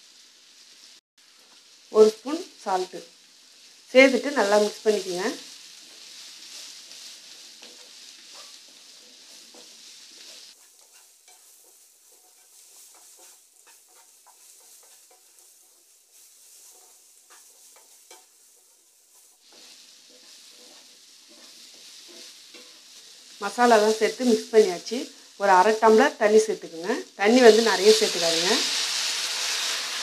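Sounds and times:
faint sizzling: 0.0 - 30.0
spatula scraping and tapping pan: 5.8 - 23.4.

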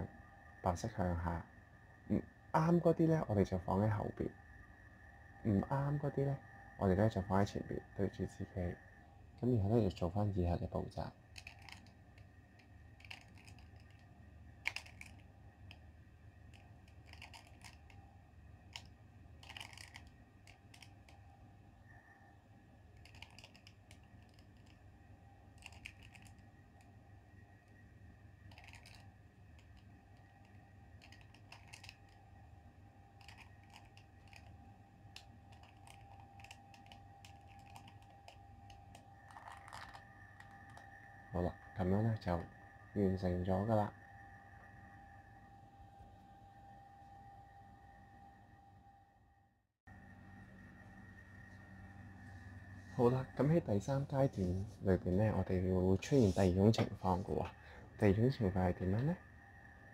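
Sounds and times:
low steady hum: 0.0 - 59.9
plastic puzzle cube clicking: 11.4 - 14.0, 14.6 - 15.8, 16.5 - 18.0, 18.7 - 21.2, 23.0 - 24.8, 25.6 - 26.4, 28.5 - 29.9, 31.0 - 32.2, 33.2 - 34.5, 35.2 - 40.8.

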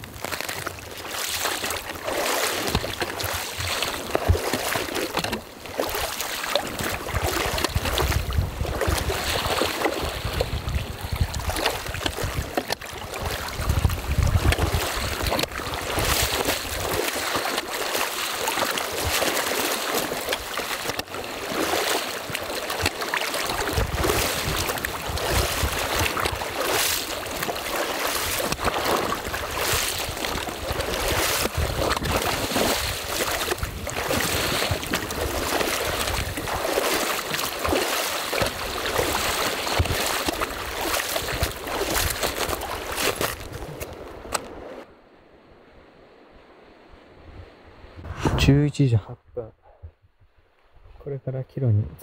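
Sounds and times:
water rushing and sloshing: 0.0 - 48.9
clothing rubbing on microphone: 48.0 - 48.6.

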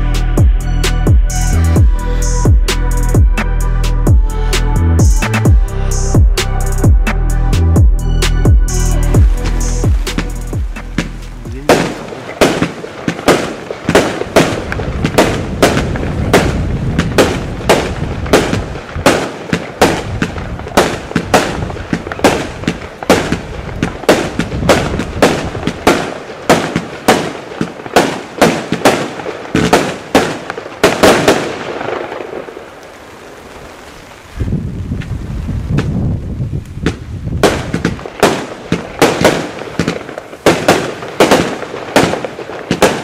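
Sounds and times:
firework cake sharp bangs: 9.0 - 32.5, 36.8 - 43.0.

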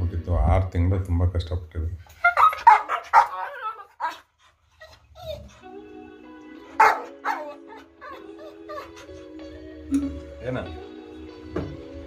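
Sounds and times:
dog barking: 2.3 - 4.2, 6.8 - 7.8.

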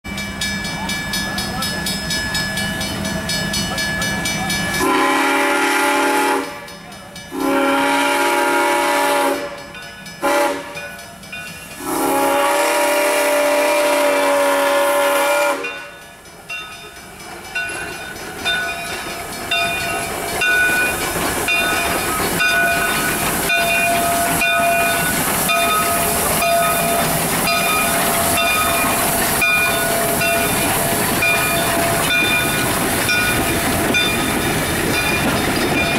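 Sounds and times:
locomotive exhaust chuffs and clanks: 0.1 - 35.9
steam whistle blasts: 4.8 - 6.7, 7.3 - 10.8, 11.8 - 15.9
bell ringing: 15.6 - 35.9.

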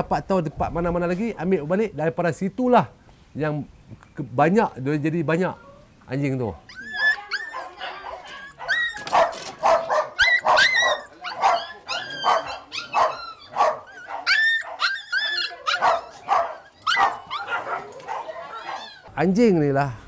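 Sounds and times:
dogs barking and yelping: 6.6 - 19.1.

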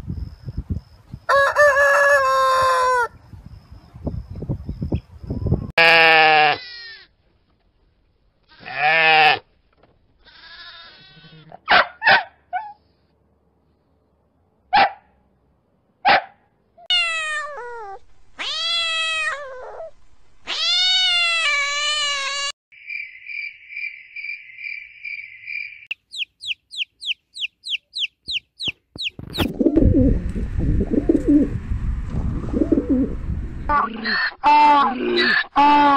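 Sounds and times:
sheep bleating: 5.8 - 7.1, 8.5 - 9.4, 10.2 - 11.6
cat meowing: 16.9 - 22.5
fast short high chirps: 25.9 - 29.6
high steady pulsing call: 25.9 - 31.2.

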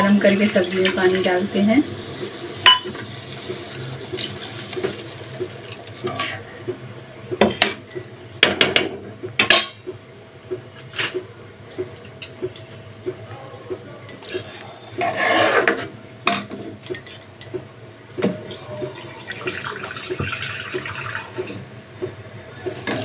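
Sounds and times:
gravy simmering: 0.0 - 7.4
steel clinking against pan: 1.4 - 3.4.

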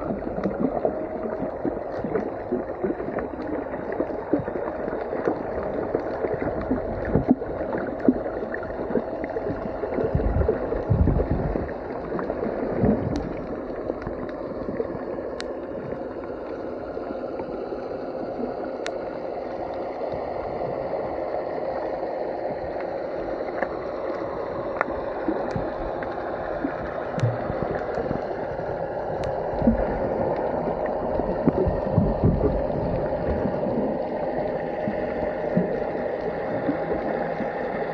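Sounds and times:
underwater churning rush: 0.0 - 37.9
low underwater thumps: 9.5 - 11.8, 12.7 - 13.4, 29.4 - 30.3, 31.1 - 33.9.

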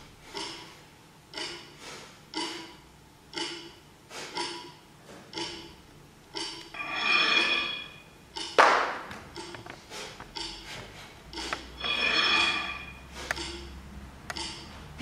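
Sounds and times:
metallic clanks and pings: 6.4 - 8.6, 11.7 - 13.8
loud ringing metal clang: 6.7 - 8.2, 11.8 - 13.1.

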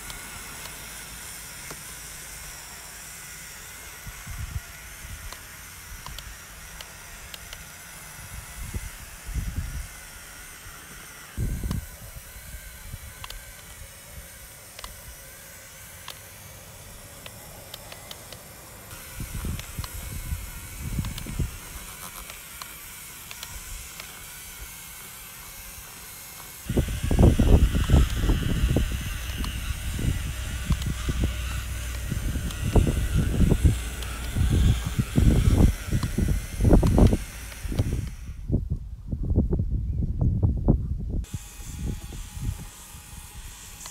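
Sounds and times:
electric motor whining: 0.0 - 38.8, 41.2 - 43.9.

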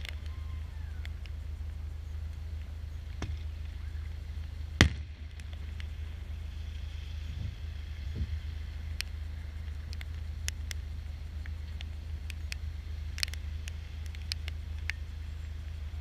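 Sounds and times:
steady low rumble: 0.0 - 16.0
faint firework crack: 4.4 - 15.0
firework bang: 4.8 - 5.2.

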